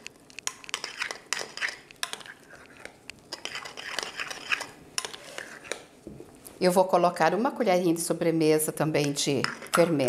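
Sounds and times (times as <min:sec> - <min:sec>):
spoon scraping glass bowl: 0:00.6 - 0:05.8, 0:09.2 - 0:10.0.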